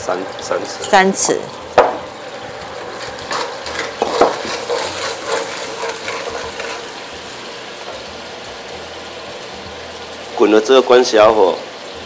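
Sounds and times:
sauce hissing in a wok: 0.0 - 12.0
wooden spatula scraping a pan: 2.5 - 7.1.

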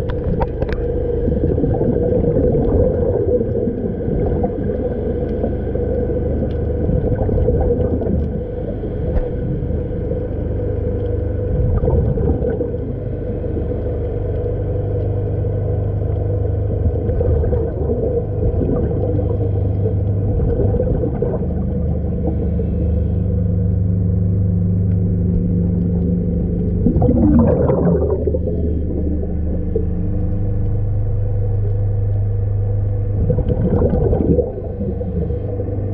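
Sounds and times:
underwater machinery hum: 0.0 - 35.9.

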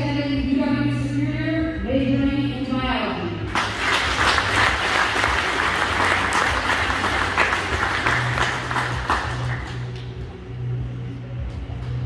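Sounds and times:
audience applauding: 3.5 - 10.2.

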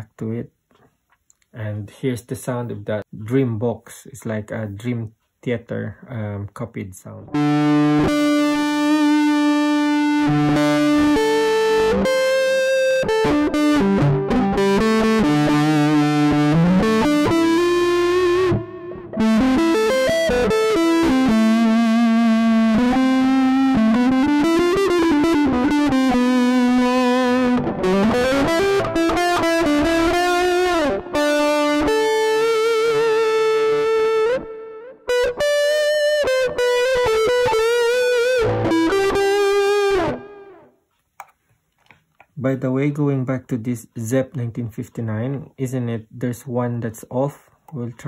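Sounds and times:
electric guitar lead: 7.2 - 40.7.

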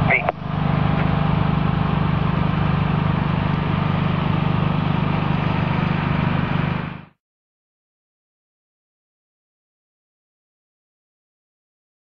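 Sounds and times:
truck diesel engine running: 0.0 - 7.2.

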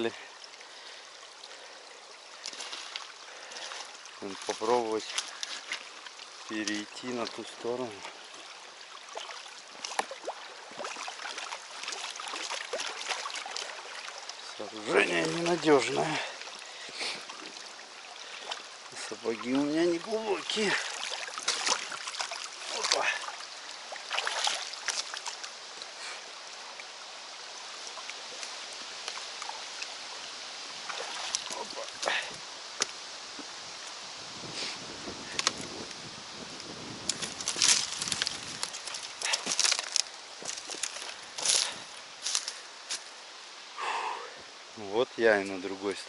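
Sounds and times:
stream gurgling and trickling: 0.0 - 46.0
boots stepping on creaking logs: 20.6 - 23.2, 35.3 - 35.8, 37.0 - 43.1.

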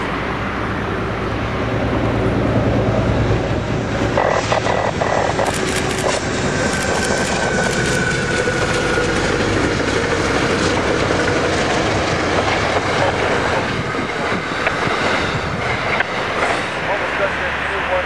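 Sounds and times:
train passing: 0.0 - 18.0
wheels clattering on rails: 3.5 - 16.8.

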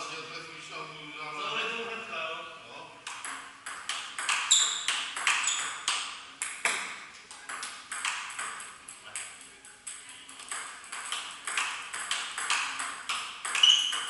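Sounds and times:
ball clicking off paddles: 3.0 - 14.0
ball bouncing on table: 3.1 - 9.3, 9.9 - 14.0.

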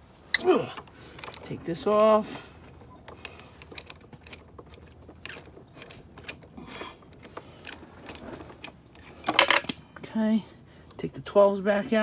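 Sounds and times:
clamp screw clicking and scraping: 1.1 - 9.8.

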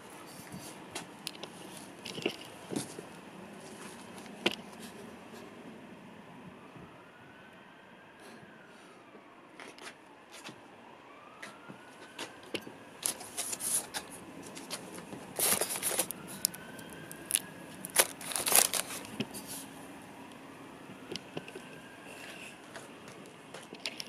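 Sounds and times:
distant siren wailing: 0.0 - 24.0
plastic bag and cardboard rustling: 13.0 - 19.7.

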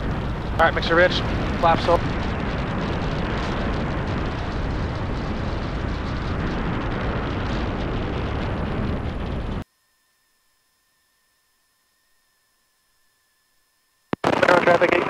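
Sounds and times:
airplane engine and propeller: 0.0 - 9.6
loud wind buffeting microphone: 0.0 - 9.6.

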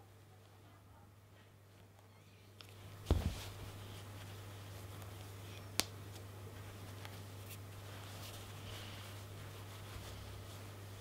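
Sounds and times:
steady low hum: 0.0 - 11.0
knitted fabric rustling: 2.7 - 11.0
soft thump: 3.0 - 3.5.

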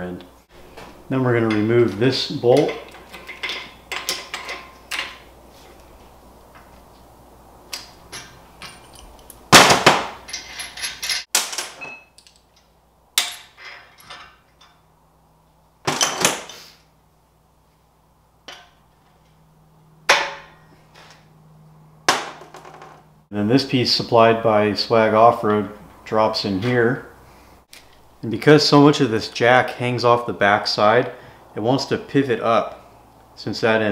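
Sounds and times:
steel tools clanking on workbench: 2.5 - 5.3, 10.2 - 14.8.

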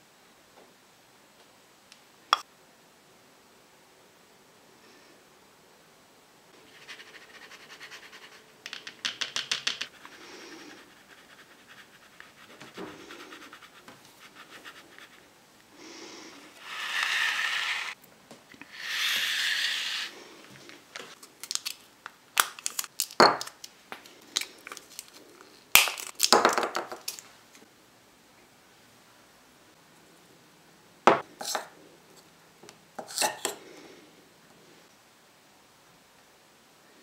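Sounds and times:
plastic packet clicking and crinkling: 21.1 - 27.2.

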